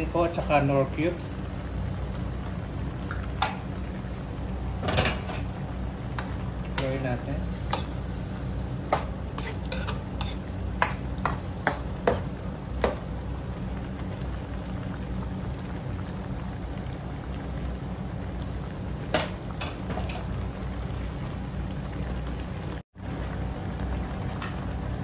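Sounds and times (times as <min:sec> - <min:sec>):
stew simmering and bubbling: 0:00.0 - 0:25.0.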